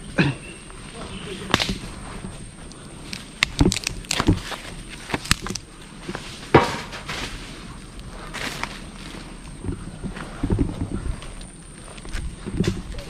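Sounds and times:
low rustle: 0:00.0 - 0:13.0
snaps crackles and knocks: 0:01.5 - 0:01.9, 0:02.6 - 0:07.2.

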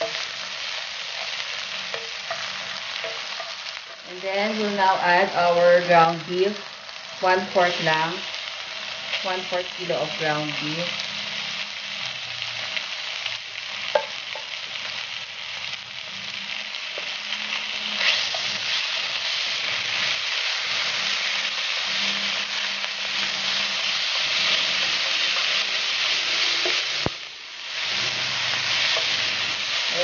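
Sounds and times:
spatula stirring in a pan: 0:00.0 - 0:05.2, 0:12.6 - 0:30.0
meat sizzling in a pan: 0:00.0 - 0:30.0.

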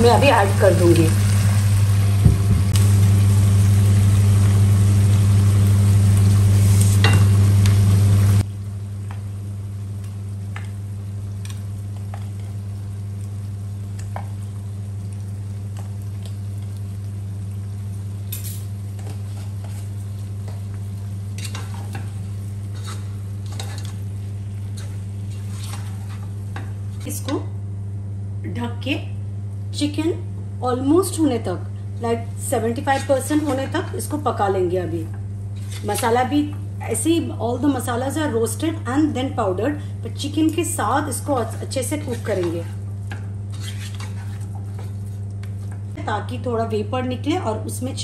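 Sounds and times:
chicken sizzling in a pot: 0:00.0 - 0:27.0
steady low hum: 0:00.0 - 0:48.0
wooden spatula stirring: 0:24.7 - 0:26.7, 0:41.4 - 0:45.8.

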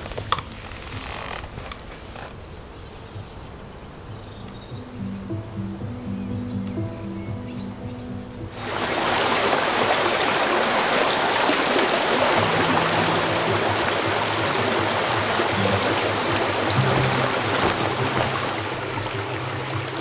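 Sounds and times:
background music low held notes: 0:00.0 - 0:20.0
stream water rushing: 0:08.5 - 0:20.0.

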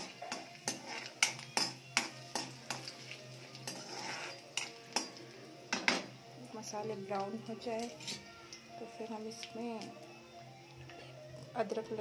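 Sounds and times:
metal spoon scraping a pan: 0:00.0 - 0:06.1, 0:07.8 - 0:08.3.

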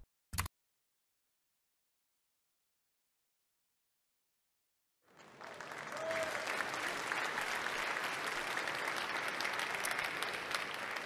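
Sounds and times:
audience applauding: 0:05.1 - 0:11.0.

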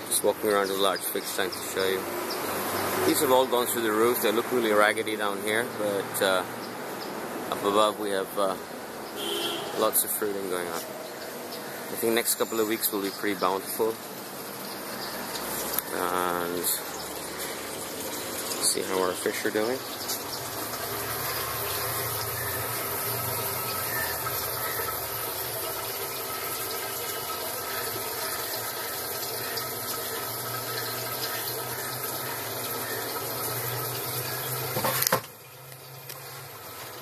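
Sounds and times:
water pouring into tank: 0:12.0 - 0:37.0.

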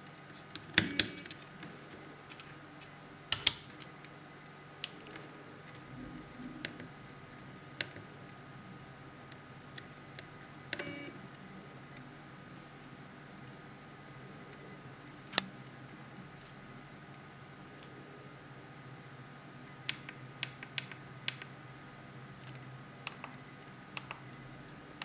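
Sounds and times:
plastic switches clicking: 0:03.3 - 0:03.7.

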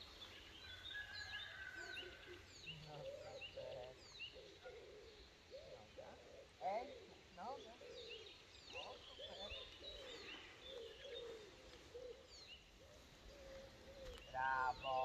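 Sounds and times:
low wavering bird calls: 0:00.0 - 0:15.0
songbirds chirping: 0:00.0 - 0:15.0
person speaking loudly: 0:14.4 - 0:15.0.

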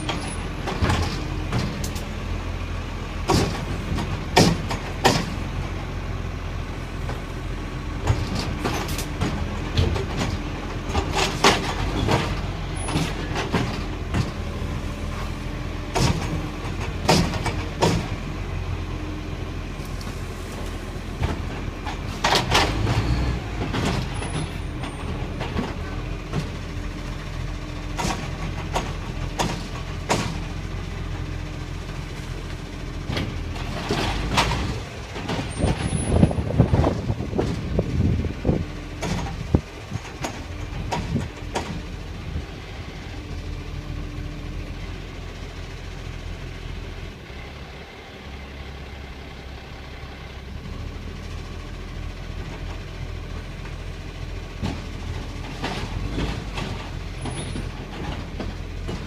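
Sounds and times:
hydraulics whine: 0:00.0 - 0:45.5
diesel engine running: 0:00.0 - 0:59.0.

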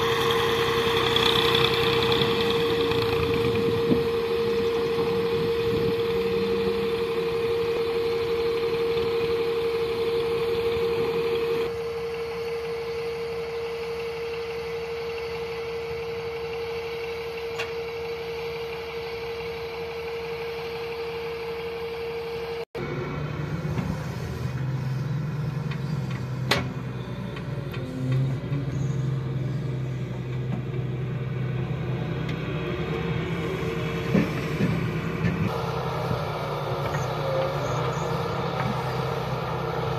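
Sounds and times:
steady whine: 0:00.0 - 0:27.4
excavator engine running: 0:00.0 - 0:39.9.

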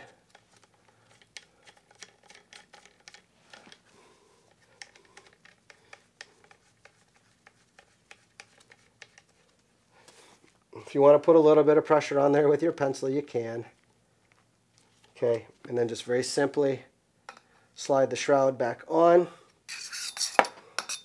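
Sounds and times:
small clicks and light scratches: 0:00.1 - 0:03.9, 0:04.5 - 0:10.6.

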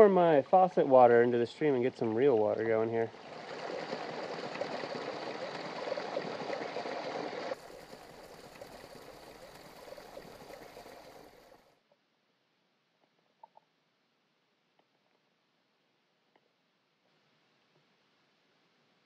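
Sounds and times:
stream running: 0:00.0 - 0:11.8.

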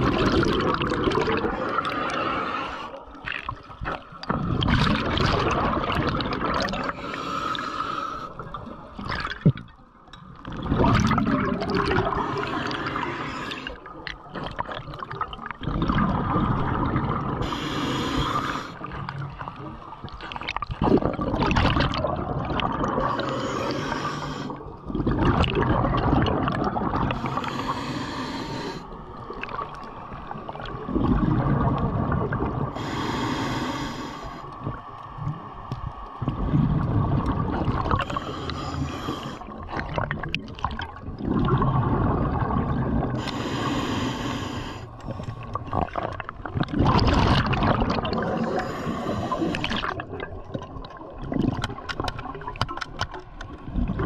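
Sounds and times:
gurgling exhaled bubbles: 0:00.0 - 0:07.2, 0:08.4 - 0:33.8, 0:36.2 - 0:52.8, 0:53.5 - 0:54.0
regulator hissing inhale: 0:02.0 - 0:03.0, 0:06.9 - 0:08.4, 0:12.2 - 0:13.8, 0:17.4 - 0:18.9, 0:23.0 - 0:24.6, 0:27.1 - 0:29.0, 0:32.7 - 0:34.6, 0:38.0 - 0:39.5, 0:43.2 - 0:45.4, 0:48.3 - 0:49.8.

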